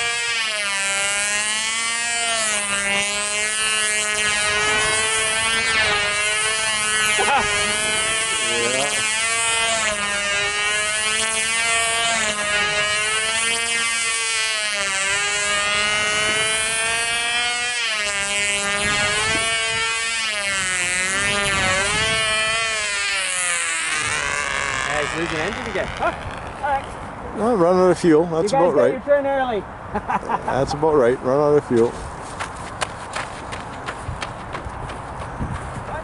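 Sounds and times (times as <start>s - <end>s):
model aircraft engine buzzing: 0.0s - 27.0s.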